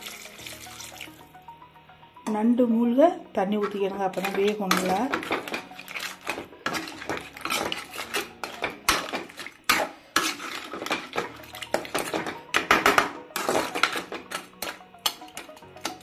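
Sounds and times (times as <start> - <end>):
metal spoon scraping a pot: 3.6 - 16.0.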